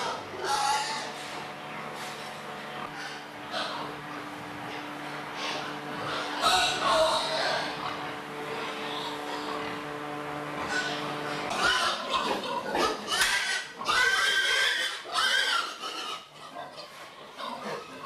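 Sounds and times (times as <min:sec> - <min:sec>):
steady hum: 0:00.0 - 0:13.8
pigs squealing: 0:00.0 - 0:18.0.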